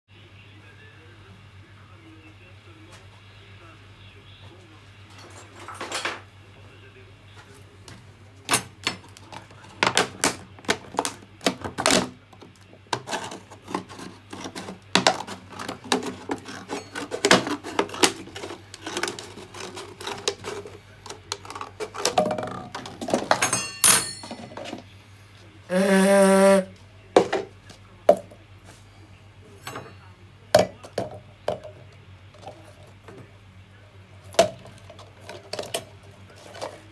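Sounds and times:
plastic bottle crinkling: 9.1 - 23.4
loud buzzy tone: 25.7 - 26.7.

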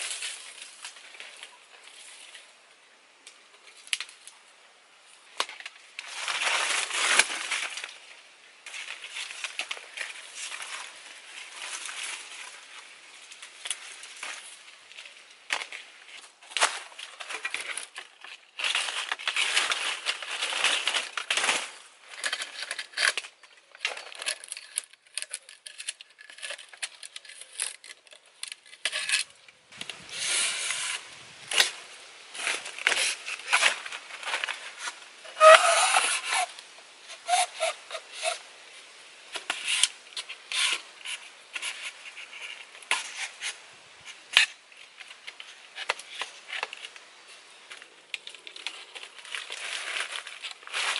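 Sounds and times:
bamboo rubbing and scraping: 5.2 - 50.9
squeaky bamboo rub: 28.6 - 31.2, 34.5 - 38.5, 39.4 - 44.5.

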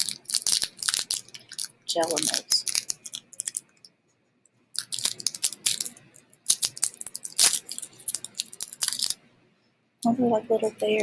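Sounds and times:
plastic wrapper crinkling: 0.0 - 3.9, 4.7 - 9.2.

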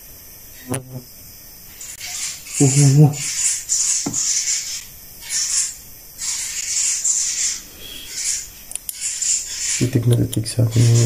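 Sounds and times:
breathy hissing bursts: 6.5 - 8.6.

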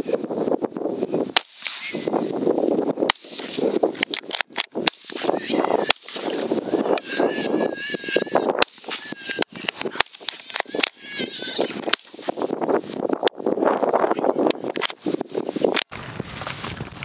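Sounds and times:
wind rustling wheat: 0.0 - 17.0
rifle shots: 1.4 - 2.1, 3.0 - 6.4, 8.6 - 9.2, 9.9 - 11.0, 11.8 - 12.4.

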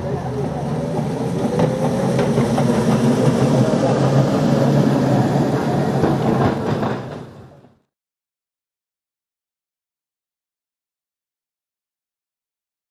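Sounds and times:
electric tram humming: 0.0 - 7.9
wheels clattering on track: 0.0 - 7.9.

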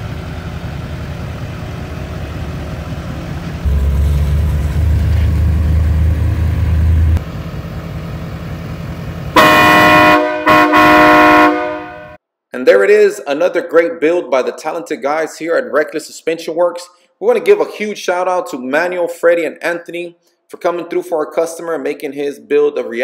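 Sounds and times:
low rumble: 1.7 - 9.2
train horn blasts: 9.3 - 12.2.

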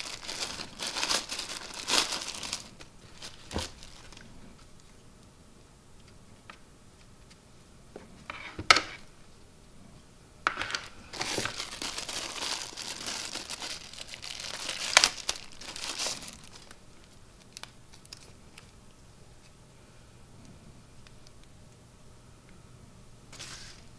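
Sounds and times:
packaging wrap crumpling: 0.0 - 4.3, 10.8 - 18.7.

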